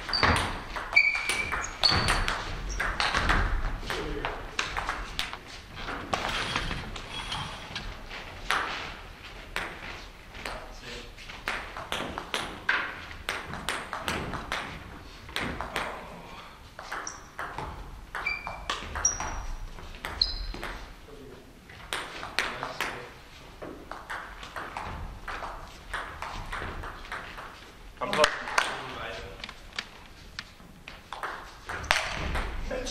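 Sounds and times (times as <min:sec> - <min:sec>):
table tennis ball pinging: 0:00.0 - 0:06.8, 0:11.4 - 0:16.0, 0:16.8 - 0:21.0, 0:23.6 - 0:28.8, 0:31.1 - 0:32.6
short high squeaks: 0:00.1 - 0:02.9, 0:17.0 - 0:17.4, 0:18.2 - 0:19.6, 0:20.2 - 0:20.6.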